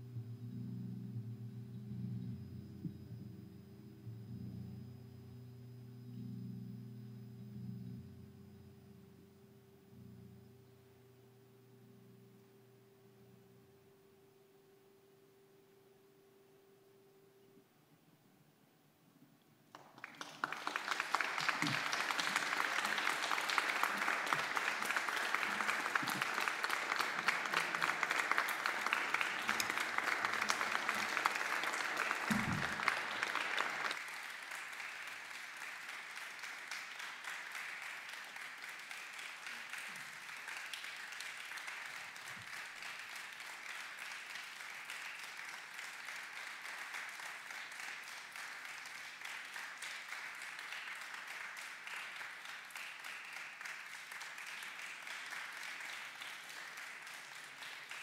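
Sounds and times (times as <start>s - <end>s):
audience applauding: 19.7s - 58.0s.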